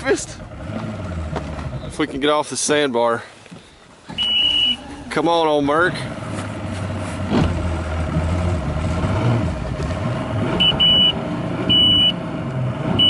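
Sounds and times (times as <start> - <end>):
outboard motor running: 0.0 - 2.4, 3.5 - 12.5
shrill electronic warning beeps: 4.2 - 4.8, 10.6 - 12.2.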